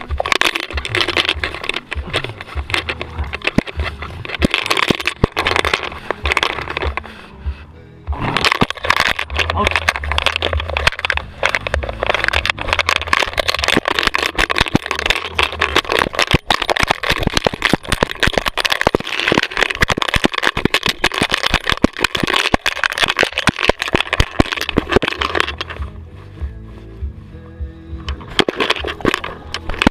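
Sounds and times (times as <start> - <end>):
camera rubbing against fur: 0.0 - 7.4.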